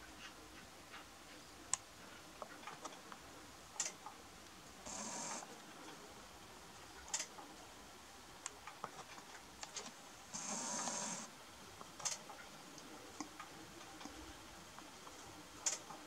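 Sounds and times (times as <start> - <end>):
hissing burst: 4.8 - 5.4, 10.3 - 11.3.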